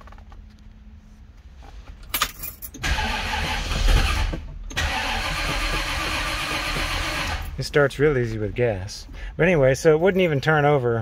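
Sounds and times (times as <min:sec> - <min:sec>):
car engine cranking and running: 0:01.7 - 0:09.2.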